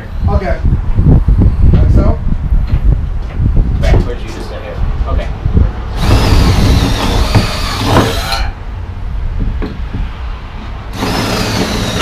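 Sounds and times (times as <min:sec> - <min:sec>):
cordless drill boring into wood: 0:06.0 - 0:08.4, 0:11.0 - 0:12.0.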